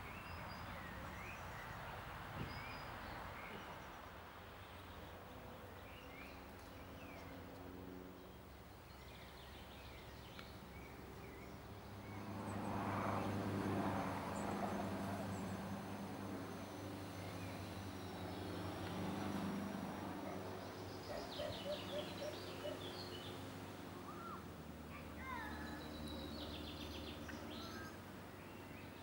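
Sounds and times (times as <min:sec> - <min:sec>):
engine passing: 0:11.0 - 0:29.0
birds chirping: 0:14.0 - 0:29.0.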